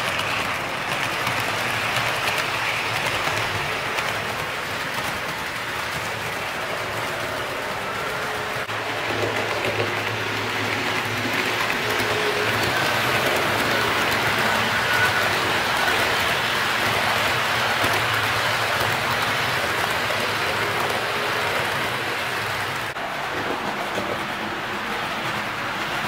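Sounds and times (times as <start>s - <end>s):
model train wheels on metal track: 0.0s - 26.0s.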